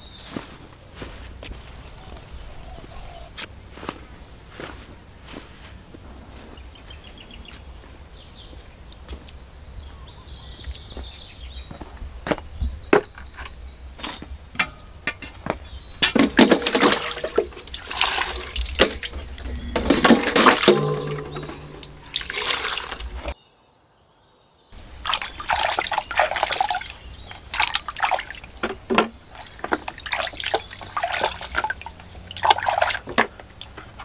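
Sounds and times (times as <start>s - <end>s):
footsteps in rubber boots: 3.4s - 8.0s
bucket and basin knocking: 12.6s - 23.4s, 25.0s - 33.8s
clattering and knocking: 14.2s - 23.4s.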